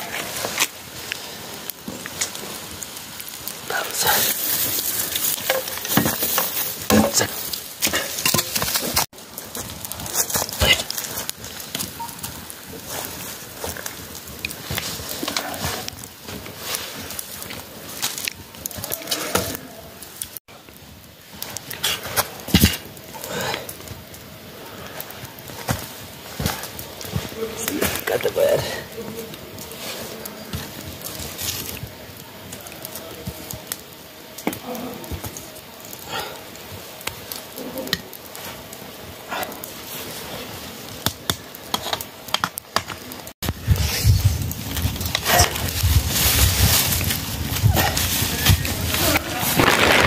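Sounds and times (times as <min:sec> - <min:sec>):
campfire crackling: 0:00.0 - 0:50.0.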